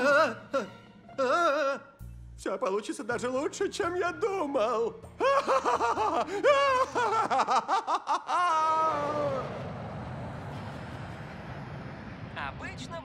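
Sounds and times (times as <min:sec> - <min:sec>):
man laughing like a cartoon villain: 0:05.2 - 0:09.4
jet airplane passing: 0:08.7 - 0:13.0.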